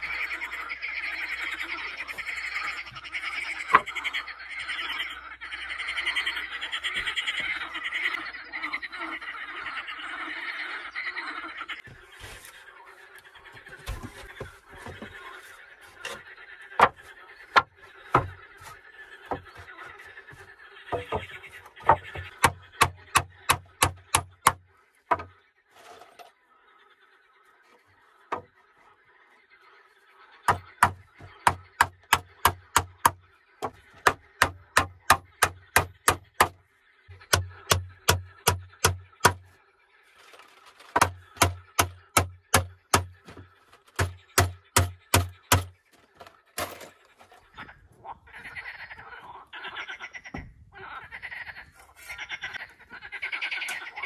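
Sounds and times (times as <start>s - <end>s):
frogs croaking: 0.0s - 54.0s
hammer driving nails into wood: 37.3s - 39.4s, 41.0s - 43.4s, 44.0s - 45.7s.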